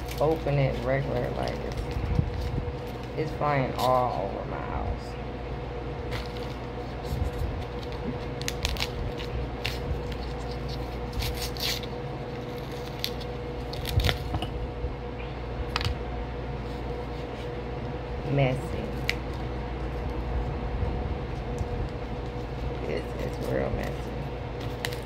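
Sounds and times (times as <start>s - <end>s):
cornstarch crackling and crunching: 0.0s - 4.5s, 6.1s - 14.4s, 21.4s - 25.0s
paper box tearing: 6.1s - 14.2s.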